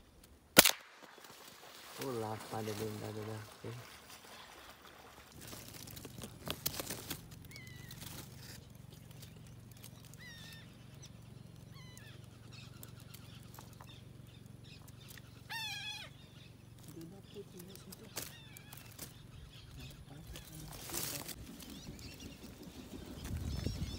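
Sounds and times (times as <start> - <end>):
steady low hum: 0.0 - 23.9
sharp clicks: 0.2 - 1.1
bird calls: 1.0 - 23.9.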